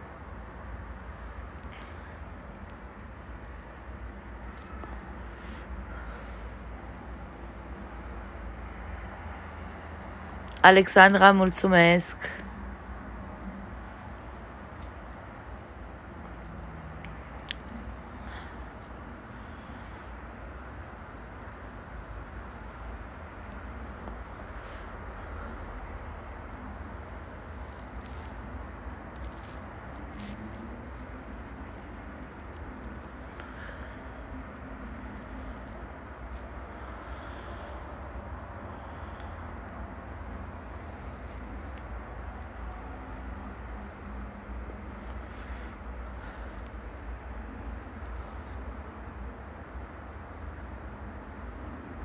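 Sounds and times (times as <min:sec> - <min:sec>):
soft hiss: 0:00.0 - 0:52.0.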